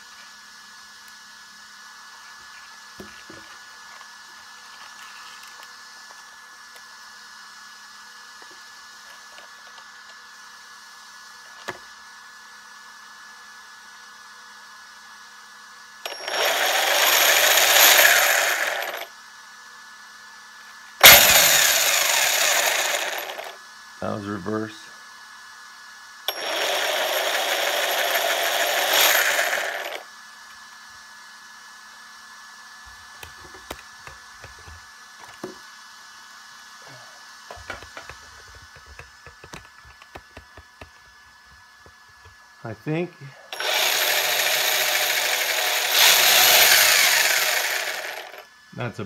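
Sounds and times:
electric motors spinning drivetrain: 0:16.0 - 0:19.1, 0:21.0 - 0:23.6, 0:26.3 - 0:30.0, 0:43.5 - 0:48.4.

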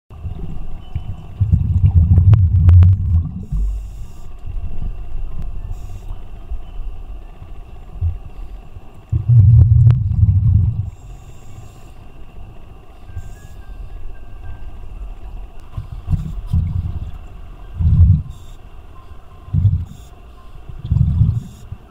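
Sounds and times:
exhaled bubbles underwater: 0:00.2 - 0:04.0, 0:09.1 - 0:11.0, 0:17.8 - 0:18.4, 0:19.5 - 0:20.0, 0:20.7 - 0:21.5
regulator inhalation hiss: 0:10.8 - 0:14.0.

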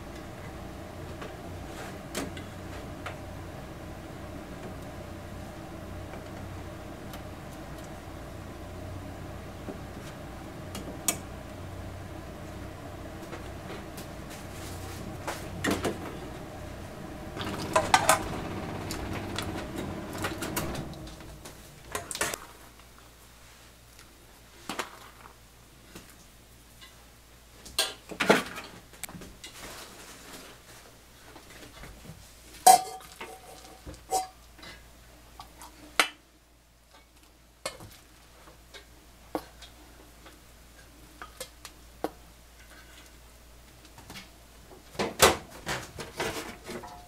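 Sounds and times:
metal bowls clinking: 0:32.7 - 0:34.4.

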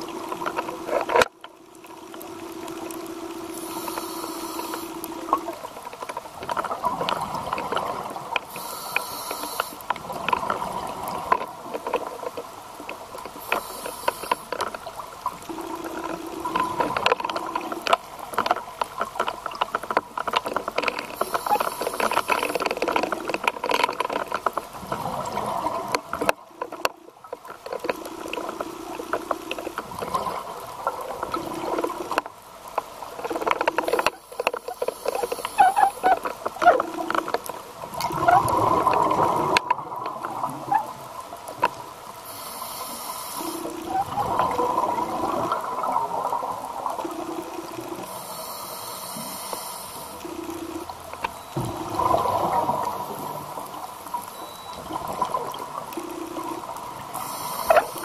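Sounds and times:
regulator hissing inhalations: 0:08.5 - 0:09.8, 0:42.2 - 0:43.7, 0:48.1 - 0:50.2, 0:57.1 - 0:58.0
underwater bubbling exhalations: 0:35.1 - 0:41.0, 0:43.4 - 0:48.1, 0:51.5 - 0:53.9.

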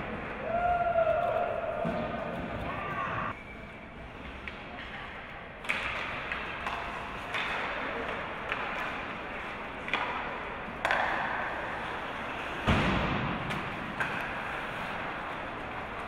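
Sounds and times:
voices in a rink: 0:00.0 - 0:16.0
hockey sticks clacking on puck: 0:04.2 - 0:16.0
thud against rink boards: 0:09.8 - 0:11.5, 0:12.5 - 0:14.6.

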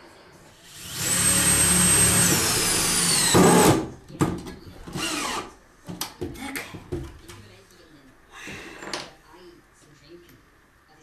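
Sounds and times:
cordless drill driving screws: 0:00.7 - 0:03.8, 0:05.0 - 0:05.5.

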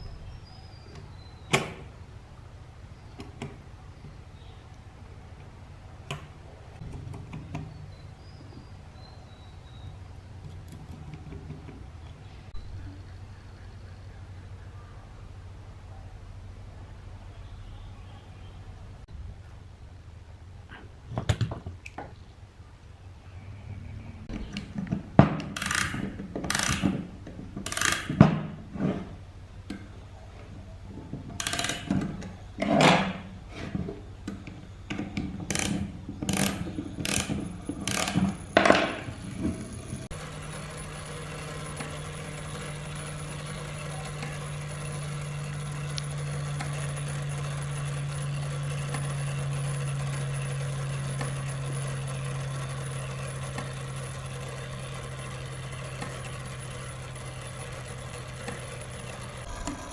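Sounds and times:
low hum with high tone: 0:00.0 - 0:11.2, 0:11.8 - 0:21.1, 0:22.2 - 0:24.8, 0:33.2 - 0:59.9
metal clicks and knocks: 0:30.9 - 0:33.2.

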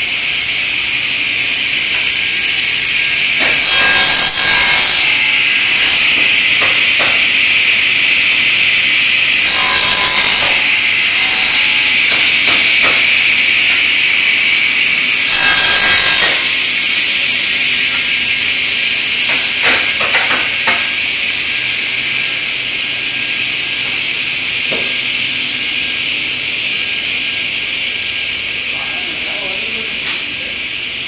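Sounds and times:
panel saw whining: 0:00.0 - 0:28.4
saw blade cutting wood: 0:03.3 - 0:18.3, 0:19.2 - 0:21.0.

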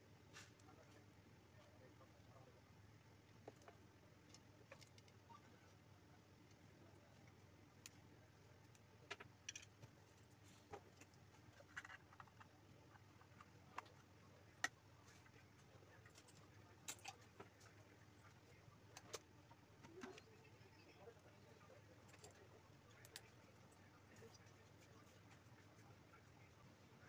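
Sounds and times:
light rustling of cables: 0:06.4 - 0:20.5.

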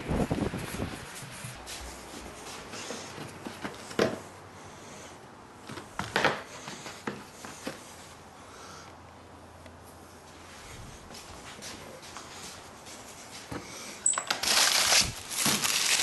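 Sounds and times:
hands handling motorbike parts: 0:11.2 - 0:16.0.

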